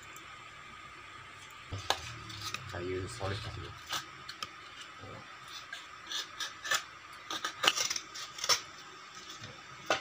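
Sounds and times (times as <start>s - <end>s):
knife scraping wood: 3.8s - 8.7s.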